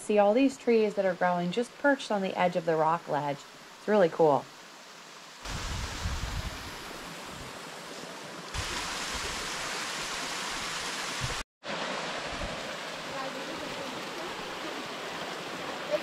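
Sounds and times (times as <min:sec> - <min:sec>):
waterfall splashing into pool: 0:08.5 - 0:16.0.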